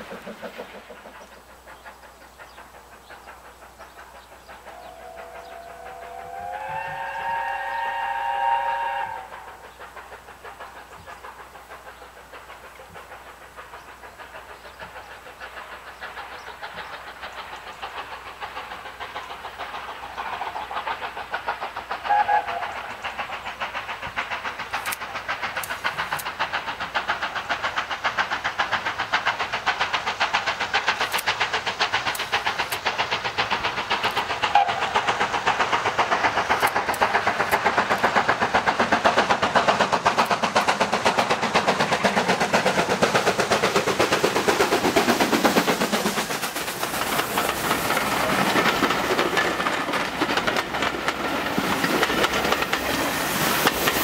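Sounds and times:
steam locomotive exhaust beats: 0:00.0 - 0:54.0
steam whistle: 0:04.7 - 0:09.5, 0:22.1 - 0:22.7.

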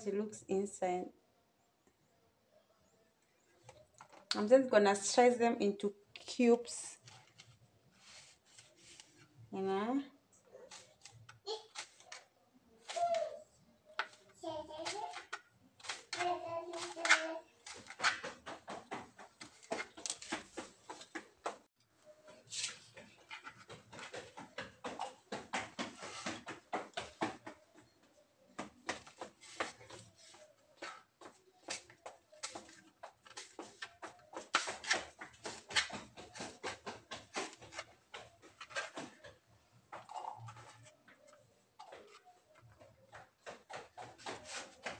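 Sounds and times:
knife chopping on plastic board: 0:14.8 - 0:21.1.

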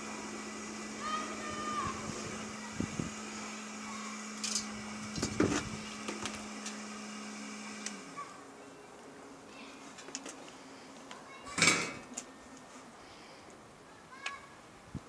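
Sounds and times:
electric blower humming: 0:00.0 - 0:09.3.

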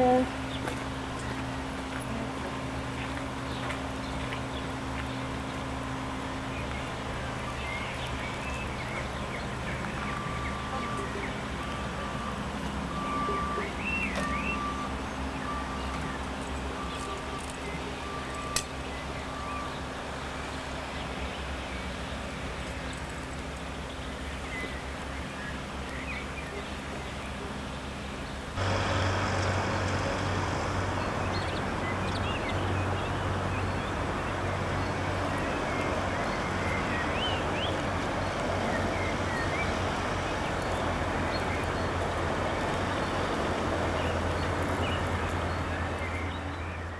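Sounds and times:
birds chirping: 0:00.0 - 0:46.9
steady rushing noise: 0:28.0 - 0:45.7
low hum: 0:28.4 - 0:46.9.

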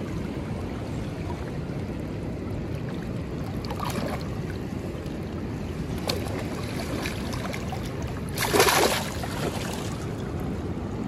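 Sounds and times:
river water rushing: 0:00.1 - 0:10.6
light splashing: 0:06.0 - 0:10.0.

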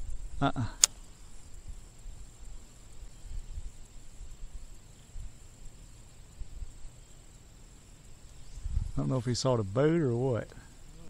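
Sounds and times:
high-pitched insect trill: 0:00.0 - 0:11.0
low rumbling on microphone: 0:08.5 - 0:09.2.

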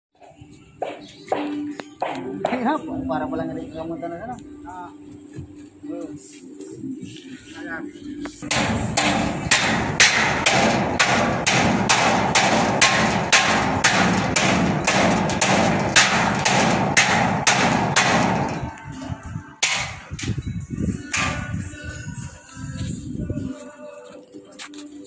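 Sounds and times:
background music: 0:00.2 - 0:25.0
hammer blows on steel: 0:08.4 - 0:21.8.

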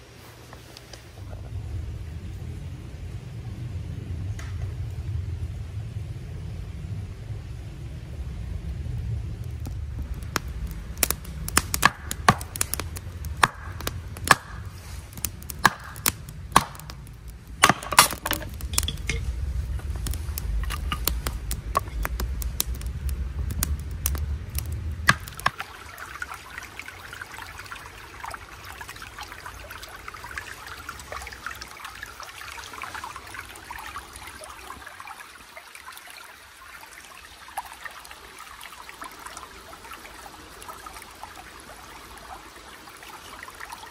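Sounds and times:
kindling fire cracking: 0:00.6 - 0:34.3
low rumble: 0:01.1 - 0:25.5
stream trickling over stones: 0:09.0 - 0:43.9
hatchet chopping wood: 0:11.5 - 0:12.8, 0:13.4 - 0:14.6, 0:15.5 - 0:17.0, 0:17.6 - 0:19.2, 0:25.1 - 0:25.6.

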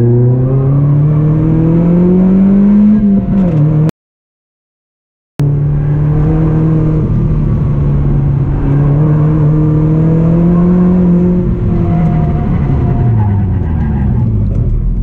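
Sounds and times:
car engine pulling hard: 0:05.4 - 0:15.0.

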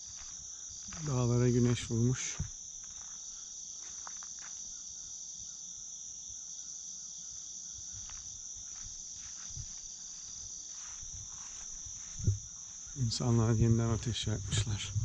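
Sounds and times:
crickets and insects chirping: 0:00.0 - 0:15.0
insect trill: 0:00.0 - 0:15.0.

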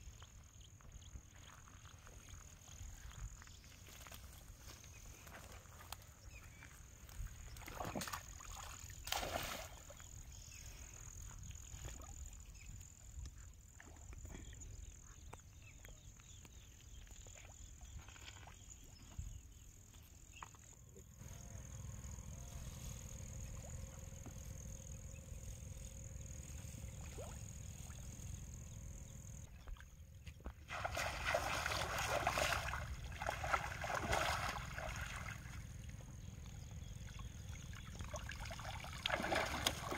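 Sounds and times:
water splashing and sloshing: 0:07.0 - 0:10.2, 0:29.4 - 0:39.9
low steady rumble: 0:21.1 - 0:29.5, 0:32.8 - 0:39.1.

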